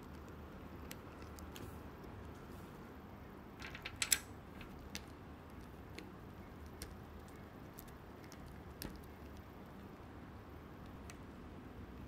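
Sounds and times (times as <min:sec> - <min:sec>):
plastic puzzle cube pieces clicking: 0:03.6 - 0:09.4.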